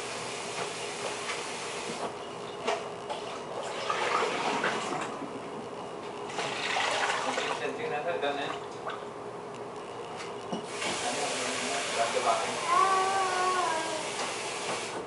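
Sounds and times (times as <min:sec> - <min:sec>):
running water hiss: 0:10.7 - 0:15.0.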